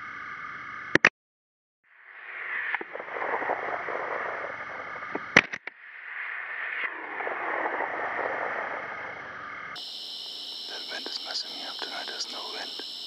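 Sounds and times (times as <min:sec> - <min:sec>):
steady hiss: 0:06.2 - 0:13.0.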